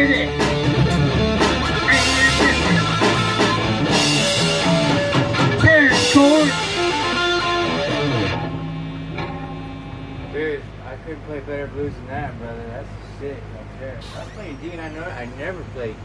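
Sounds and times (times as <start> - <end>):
drums with cymbals: 0.0 - 8.1
electric guitar playing: 0.0 - 10.8.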